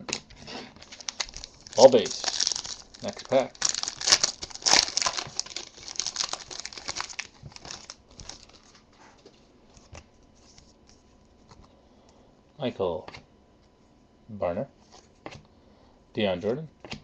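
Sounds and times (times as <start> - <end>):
foil wrapper tearing and crinkling: 0.8 - 8.8
cards rustling: 0.8 - 8.9.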